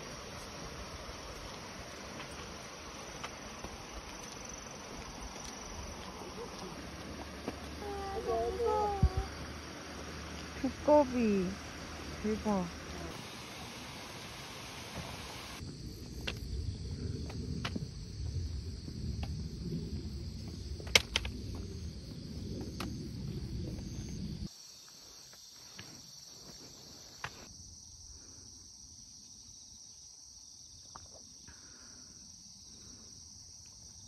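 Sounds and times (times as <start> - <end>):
insects chirring: 0.0 - 34.0
wind rumble on microphone: 8.8 - 9.6, 15.6 - 24.5.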